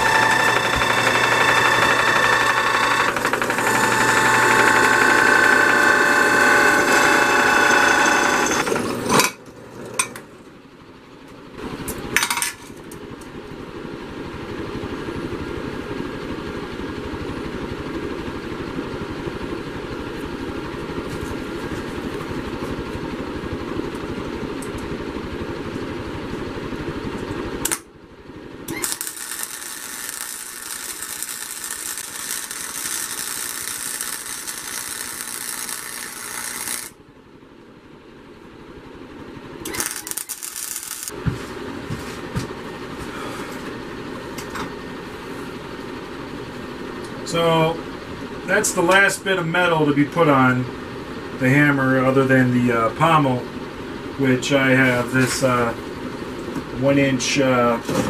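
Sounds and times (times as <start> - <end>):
drill press boring into steel: 0.0 - 9.3, 28.7 - 37.0, 39.6 - 41.1
welder arc crackling: 0.0 - 9.4, 27.6 - 27.9, 28.6 - 37.0, 39.6 - 41.4
steady hum: 0.0 - 58.0.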